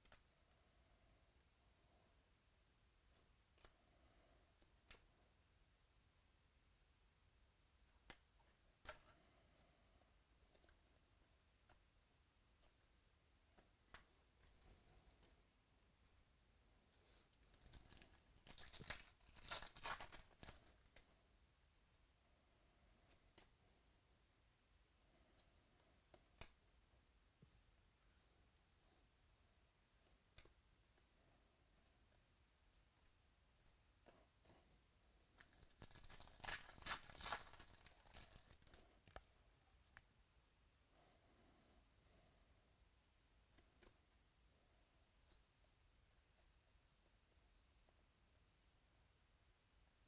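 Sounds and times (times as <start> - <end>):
foil wrapper tearing and crinkling: 17.6 - 20.7, 35.4 - 38.6.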